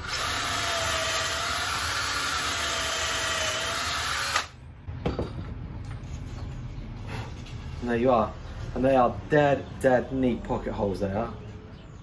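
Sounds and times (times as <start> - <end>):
cordless drill boring wood: 0.0 - 4.6.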